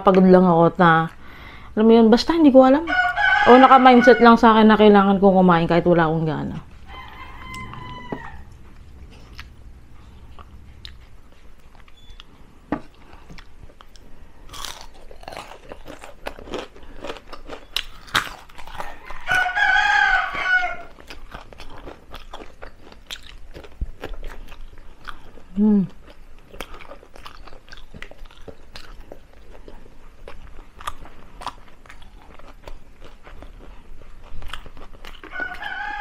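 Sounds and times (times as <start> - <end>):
rooster crowing: 2.9 - 4.5, 6.8 - 8.8, 18.7 - 21.0, 35.3 - 36.0
crunching crispy chicken feet: 13.1 - 36.0.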